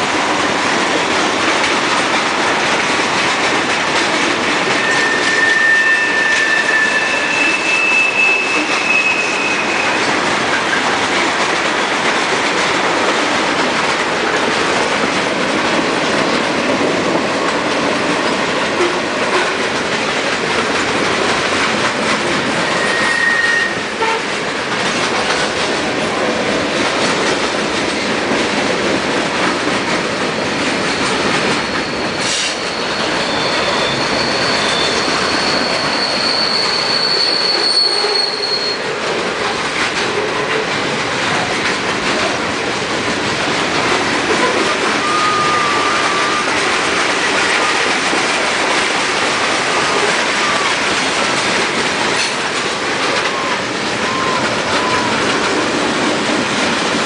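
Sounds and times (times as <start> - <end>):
steel wheels rolling on rails: 0.0 - 57.0
high wheel squeals: 4.7 - 10.2, 22.6 - 23.8, 31.0 - 38.9, 45.0 - 46.6.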